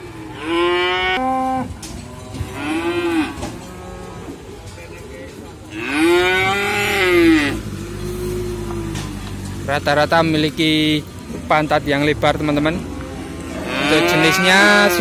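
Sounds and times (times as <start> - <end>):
cattle mooing: 0.1 - 4.4, 5.7 - 9.2, 13.5 - 15.0.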